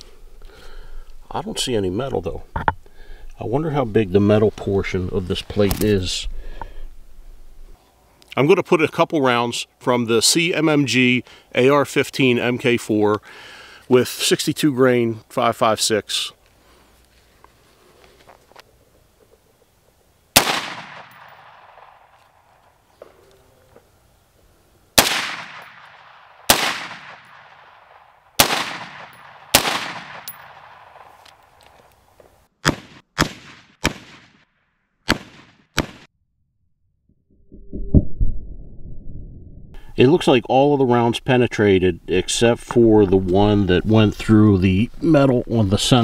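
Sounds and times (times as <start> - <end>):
rifle shots with echo: 20.4 - 22.2, 25.0 - 31.2, 32.6 - 34.4, 35.1 - 36.1.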